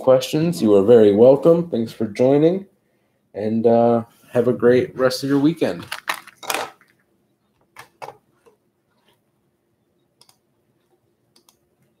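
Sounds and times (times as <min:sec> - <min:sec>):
person speaking: 0:03.4 - 0:06.7
faint clicks: 0:10.2 - 0:11.9.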